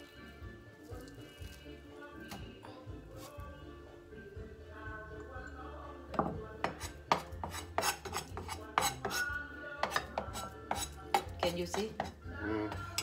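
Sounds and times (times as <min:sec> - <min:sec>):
knife and bowl knocking on cutting board: 0:06.1 - 0:09.2, 0:09.8 - 0:12.8.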